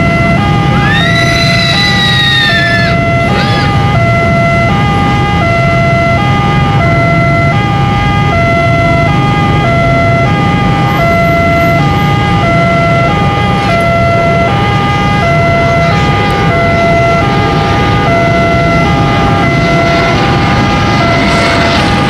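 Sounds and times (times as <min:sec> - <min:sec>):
level crossing two-tone siren: 0:00.0 - 0:22.0
low rumble: 0:11.8 - 0:22.0.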